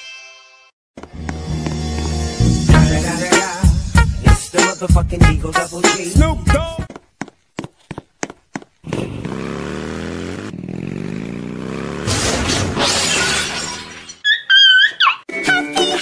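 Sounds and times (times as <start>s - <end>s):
motorcycle engine revving: 8.8s - 12.8s
crash with breaking glass: 12.1s - 14.2s.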